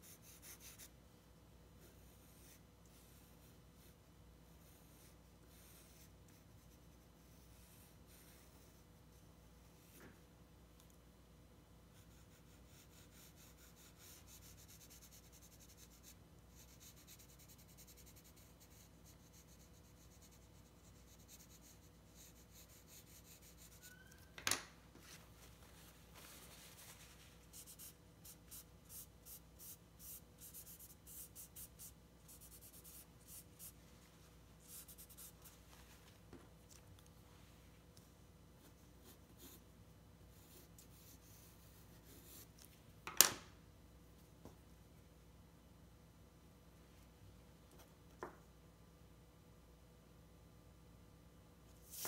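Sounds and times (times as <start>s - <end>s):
pencil scratching on paper: 0.0s - 0.9s, 1.8s - 10.0s, 11.9s - 24.2s, 27.4s - 33.8s, 34.6s - 35.5s, 38.6s - 39.6s, 40.3s - 42.6s.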